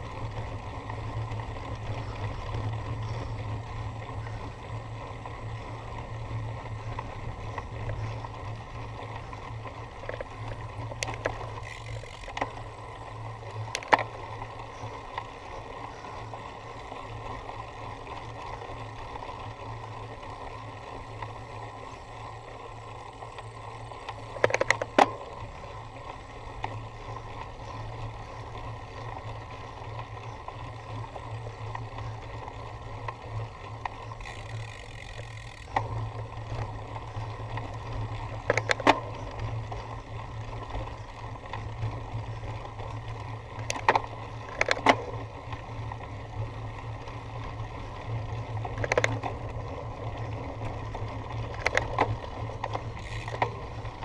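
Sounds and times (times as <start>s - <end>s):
bicycle rattle: 0.0s - 54.0s
wind and tyre noise: 0.0s - 54.0s.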